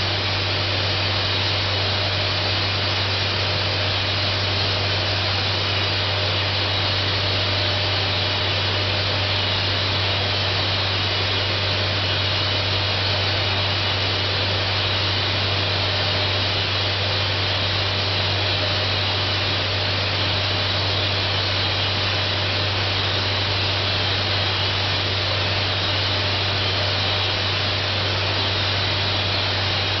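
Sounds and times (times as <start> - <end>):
spray gun hissing: 0.0 - 30.0.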